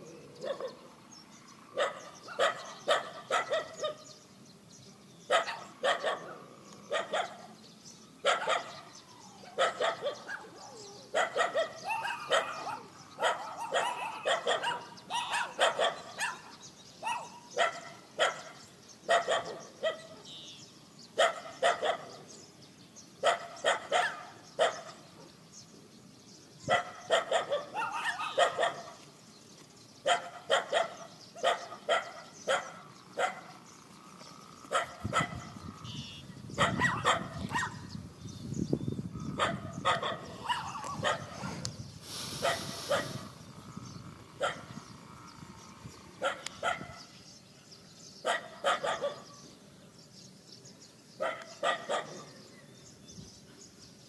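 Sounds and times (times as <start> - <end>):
dog barking: 0.4 - 0.8, 1.8 - 4.1, 5.3 - 7.5, 8.2 - 8.9, 9.5 - 20.3, 21.2 - 22.2, 23.2 - 25.0, 26.7 - 29.0, 30.0 - 33.5, 34.7 - 35.5, 36.6 - 37.9, 39.4 - 41.7, 42.3 - 43.2, 44.4 - 44.7, 46.2 - 47.0, 48.2 - 49.5, 51.2 - 52.4.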